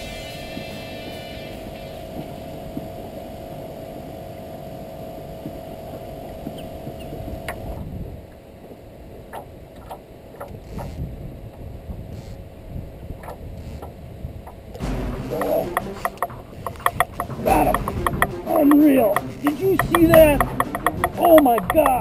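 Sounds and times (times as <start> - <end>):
steady hum: 0.0 - 9.2, 13.7 - 22.0
wind: 0.0 - 22.0.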